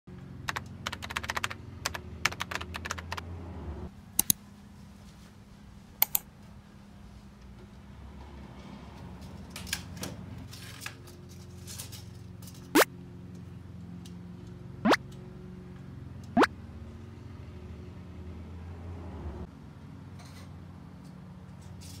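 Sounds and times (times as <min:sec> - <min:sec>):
keyboard keystroke clicks: 0:00.5 - 0:03.2.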